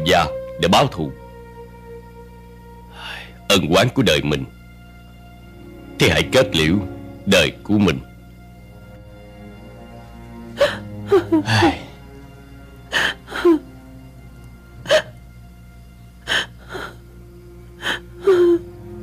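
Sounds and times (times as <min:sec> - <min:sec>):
sad background music: 0:00.0 - 0:19.0
woman sobbing: 0:10.6 - 0:12.0, 0:12.9 - 0:13.7, 0:14.8 - 0:15.2, 0:16.2 - 0:17.1, 0:17.8 - 0:18.8.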